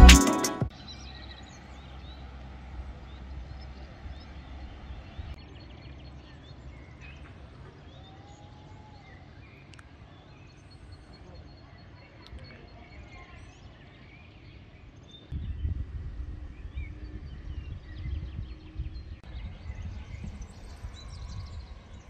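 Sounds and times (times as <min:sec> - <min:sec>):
low steady rumble: 0:15.3 - 0:22.0.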